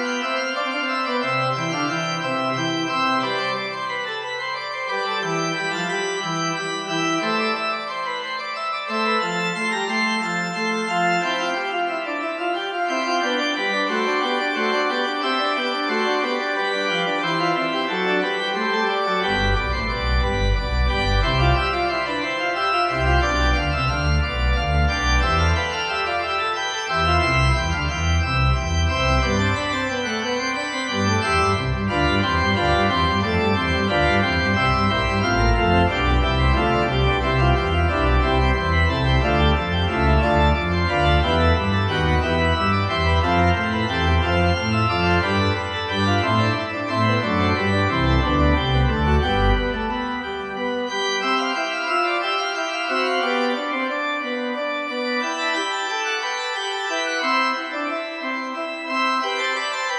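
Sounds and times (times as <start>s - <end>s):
organ chords: 0.0s - 59.9s
deep organ bass notes: 19.2s - 30.0s, 30.7s - 50.4s.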